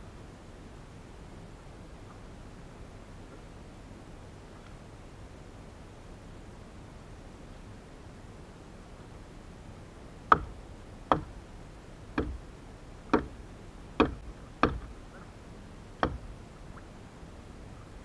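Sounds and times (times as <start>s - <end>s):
hand tool knocking on hard surface: 12.2s - 12.4s, 14.0s - 14.9s.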